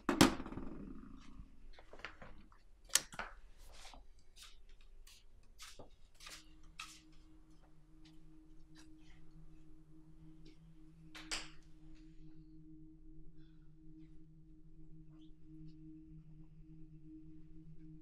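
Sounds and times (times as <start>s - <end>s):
slippered footsteps on wooden floor: 3.6s - 8.9s
low steady hum: 5.9s - 18.0s.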